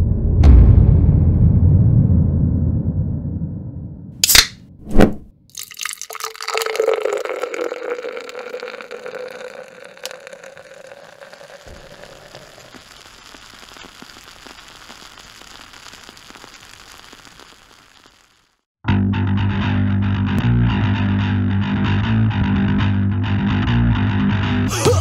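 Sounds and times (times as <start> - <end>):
sharp pop: 4.2 - 5.3
liquid pouring with fizz: 5.5 - 18.4.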